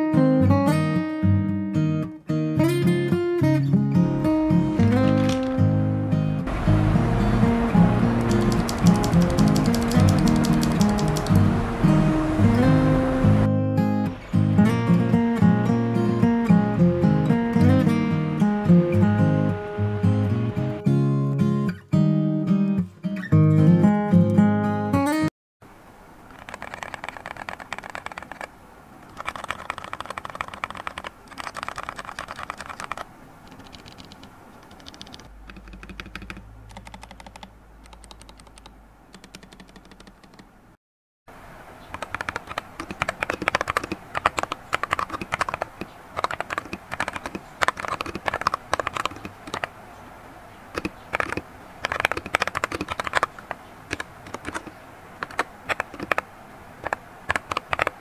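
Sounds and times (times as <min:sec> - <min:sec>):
mechanical keyboard typing: 0:05.0 - 0:05.5, 0:08.2 - 0:11.5, 0:26.3 - 0:40.5, 0:41.9 - 0:49.7, 0:50.8 - 0:56.2, 0:56.8 - 0:58.0.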